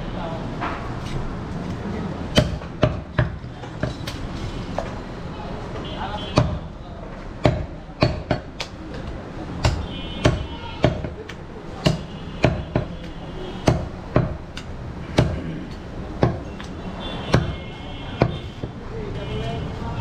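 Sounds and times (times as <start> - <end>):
knife chopping meat on wood: 2.3 - 4.2, 6.3 - 6.7, 7.4 - 16.7, 17.3 - 17.6, 18.2 - 18.8.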